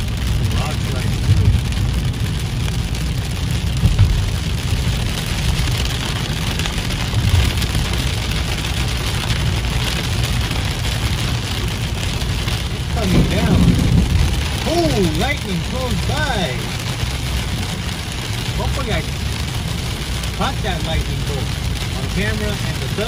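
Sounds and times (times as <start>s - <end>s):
car driving on wet road: 0.0s - 23.0s
heavy rain on car windshield: 0.0s - 23.0s.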